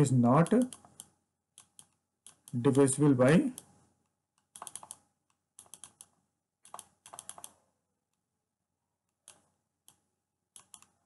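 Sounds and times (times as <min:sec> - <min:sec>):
pointing device clicks: 0:04.5 - 0:05.0, 0:06.7 - 0:07.6.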